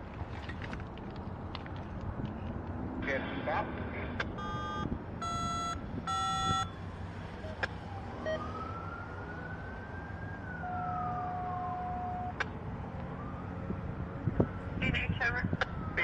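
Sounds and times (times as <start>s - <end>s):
distant siren: 4.4s - 14.8s, 15.6s - 16.0s.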